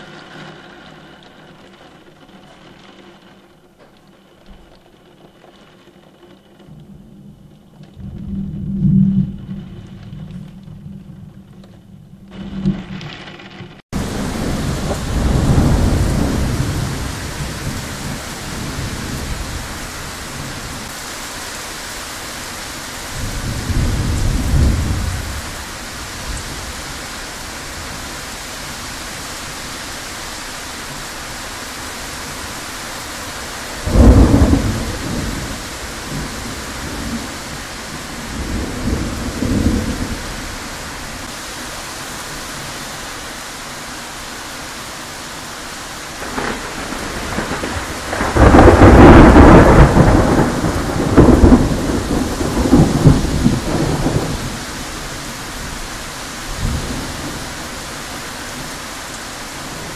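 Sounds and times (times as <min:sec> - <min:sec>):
pouring rain hiss: 0:00.0 - 0:59.9
thunder rolling: 0:06.6 - 0:21.0, 0:22.4 - 0:29.7, 0:30.8 - 0:41.3, 0:46.1 - 0:57.8.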